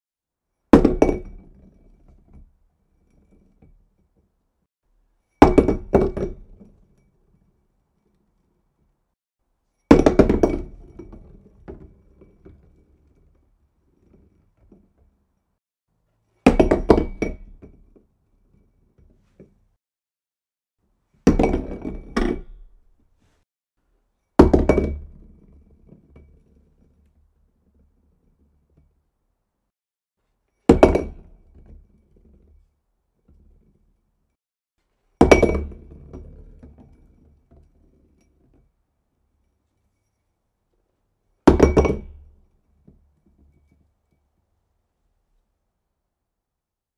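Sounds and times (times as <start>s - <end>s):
glass object dropping and clinking: 0.8s - 2.4s, 5.3s - 7.2s, 9.8s - 12.7s, 16.4s - 17.8s, 21.2s - 23.0s, 30.6s - 31.3s, 35.2s - 38.4s, 41.5s - 42.4s.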